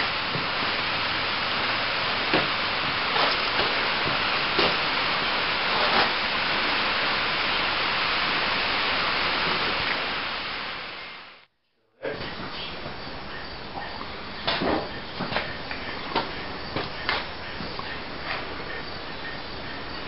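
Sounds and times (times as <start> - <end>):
rain falling: 0.0 - 11.5.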